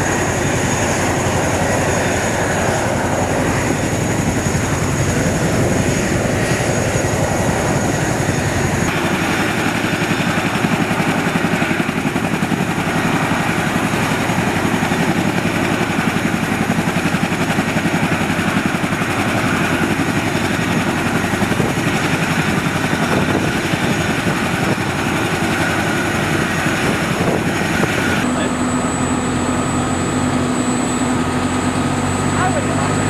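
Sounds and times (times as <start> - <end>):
helicopter rotor noise: 0.0 - 33.0.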